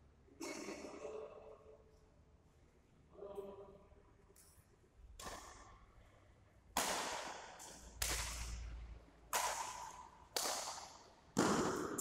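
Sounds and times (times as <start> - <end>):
rackets hitting shuttlecock: 5.2 - 5.7, 6.7 - 8.7, 9.3 - 12.0.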